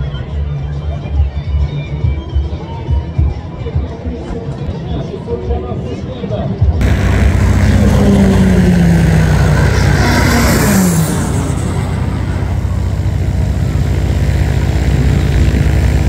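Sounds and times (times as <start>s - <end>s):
propeller aircraft drone: 6.8s - 16.0s.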